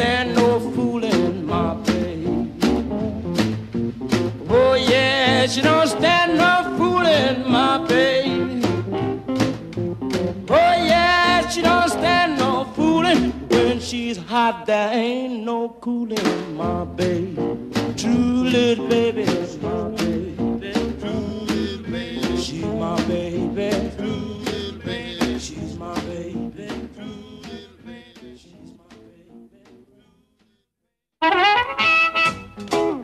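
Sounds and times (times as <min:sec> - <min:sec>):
electric blues band: 0:00.0 - 0:14.5, 0:16.2 - 0:29.0, 0:31.2 - 0:33.0
harmonica playing lead: 0:31.2 - 0:32.7.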